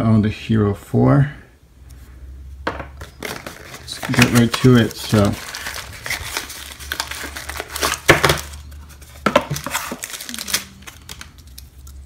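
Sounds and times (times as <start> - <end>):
packaging crinkling and rustling: 3.0 - 12.0.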